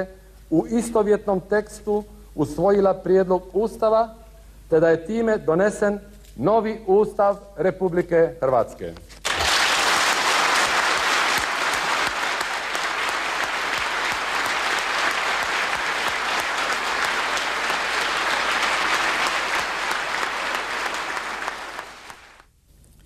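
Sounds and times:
crowd applauding: 9.2s - 22.4s.

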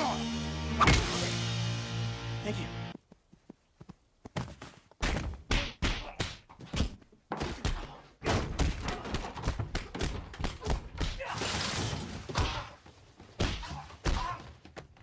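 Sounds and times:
punches thuds and slams: 5.0s - 12.8s, 13.4s - 14.5s.

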